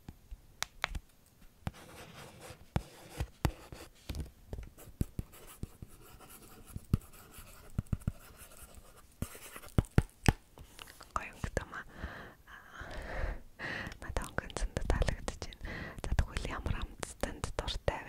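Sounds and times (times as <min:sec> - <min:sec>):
stylus scratching on plastic tablet: 0:01.7 - 0:03.9, 0:04.8 - 0:10.0.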